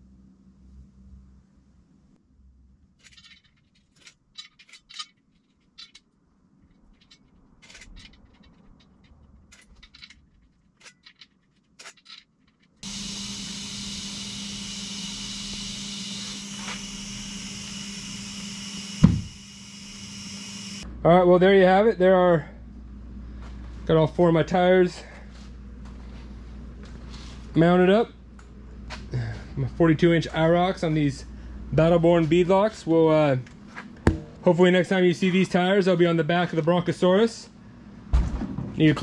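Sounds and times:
air hose inflating tire: 0:12.8 - 0:20.8
loud thump: 0:19.0 - 0:19.3, 0:34.0 - 0:34.4, 0:38.1 - 0:38.8.

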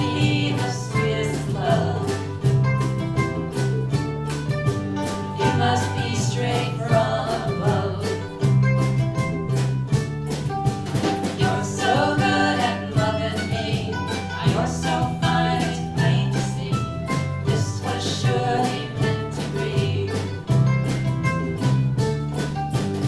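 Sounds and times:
woman singing: 0:00.0 - 0:02.4, 0:05.4 - 0:08.3, 0:11.3 - 0:20.5
low bass notes: 0:00.0 - 0:23.0
strummed ukuleles and guitar: 0:00.0 - 0:23.0.

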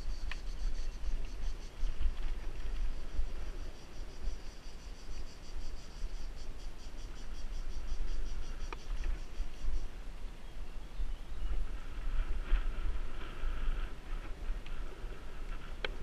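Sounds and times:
insects chirring: 0:00.0 - 0:16.0
wind rumble: 0:00.0 - 0:16.0
bike riding on dirt trail: 0:11.8 - 0:16.0.

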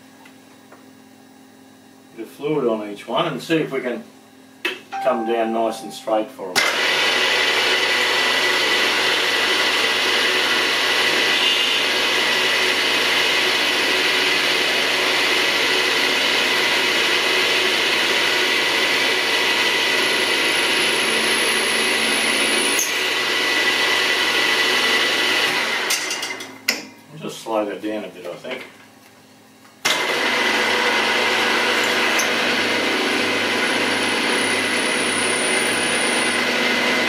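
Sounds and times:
drill press motor whine: 0:06.6 - 0:25.9, 0:29.8 - 0:37.0.

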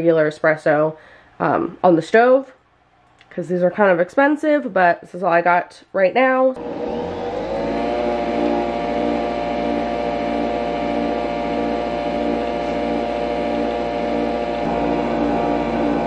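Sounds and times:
coffee machine whirring: 0:06.6 - 0:16.0
pump pulsing: 0:06.6 - 0:16.0.

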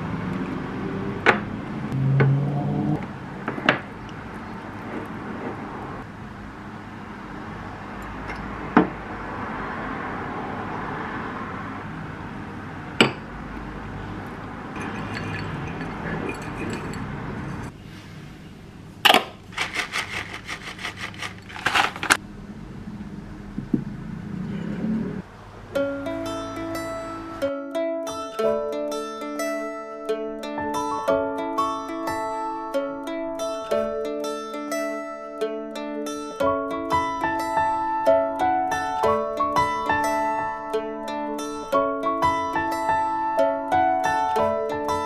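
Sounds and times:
metal spoon clinking on bowl: 0:14.8 - 0:17.7.

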